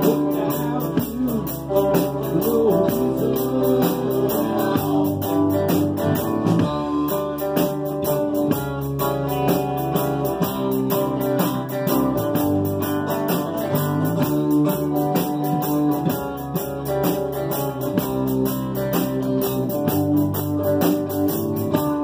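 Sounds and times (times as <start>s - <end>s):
bass guitar: 0.0s - 22.0s
strummed acoustic guitars: 0.0s - 22.0s.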